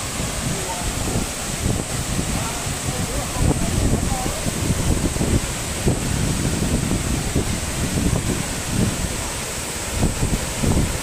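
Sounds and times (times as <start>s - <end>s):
waterfall rushing: 0.0s - 11.0s
wind buffeting microphone: 0.0s - 11.0s.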